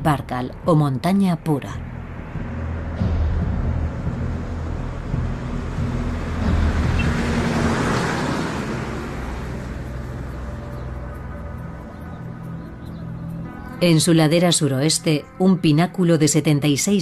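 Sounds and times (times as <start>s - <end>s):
road traffic: 0.0s - 17.0s
truck driving past: 1.9s - 13.6s.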